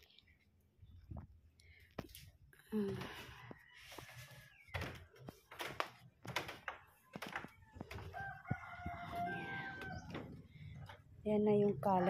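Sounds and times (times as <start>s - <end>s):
rooster crowing: 7.8s - 10.4s.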